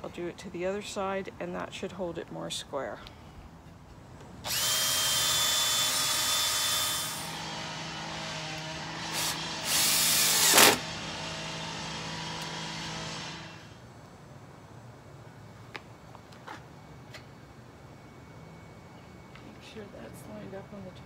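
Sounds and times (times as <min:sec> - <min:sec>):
cordless drill motor whine: 0:04.4 - 0:13.8.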